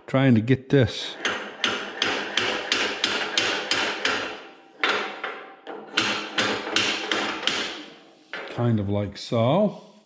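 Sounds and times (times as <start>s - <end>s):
hammer tapping metal: 1.2s - 7.9s.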